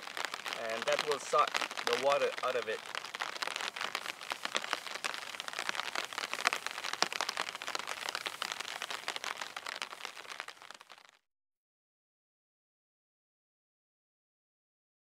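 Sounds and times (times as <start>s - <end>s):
cloth rustling through wet grass: 0.0s - 11.1s.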